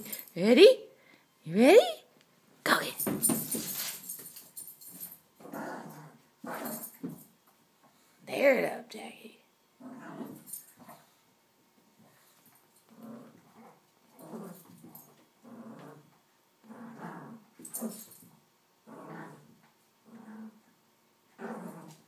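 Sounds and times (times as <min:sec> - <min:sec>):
small dog growling: 0:05.4 - 0:06.8, 0:09.8 - 0:11.1, 0:12.9 - 0:14.8, 0:15.4 - 0:18.0, 0:18.8 - 0:22.0.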